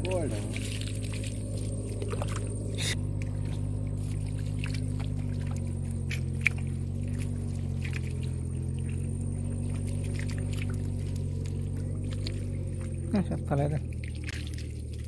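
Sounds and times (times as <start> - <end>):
low engine drone: 0.0 - 15.0.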